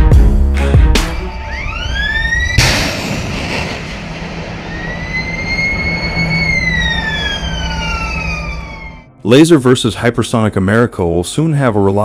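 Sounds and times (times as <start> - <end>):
siren-like tone: 1.2 - 9.2
missile rocket noise: 1.7 - 9.0.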